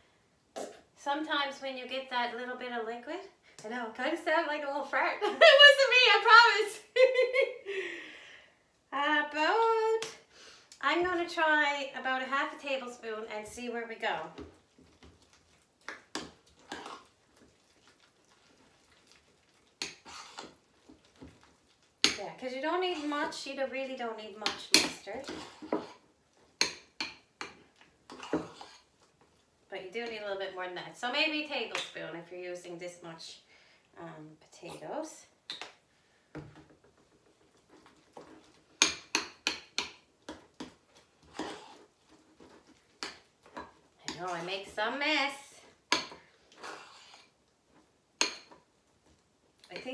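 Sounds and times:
spoon scraping bowl: 0:14.4 - 0:23.5, 0:24.4 - 0:26.0, 0:26.6 - 0:28.9, 0:37.4 - 0:44.8, 0:45.9 - 0:48.6
spoon clinking and scraping bowl: 0:16.2 - 0:17.1, 0:24.5 - 0:26.0, 0:26.6 - 0:28.9, 0:45.9 - 0:47.3.

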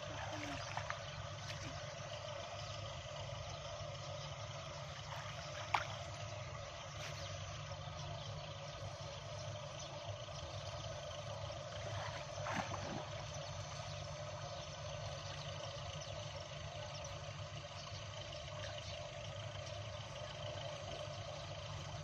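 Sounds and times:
water sloshing and splashing: 0:00.0 - 0:02.2, 0:04.8 - 0:07.2, 0:11.7 - 0:14.0
low rumble and hiss: 0:00.0 - 0:22.0.

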